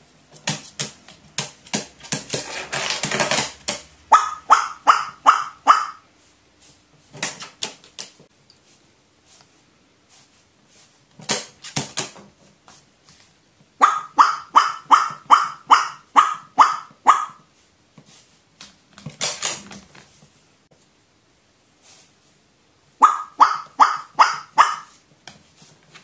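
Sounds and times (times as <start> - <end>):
crow calling wa-wa-wa: 4.1 - 6.0, 13.8 - 17.4, 23.0 - 24.9.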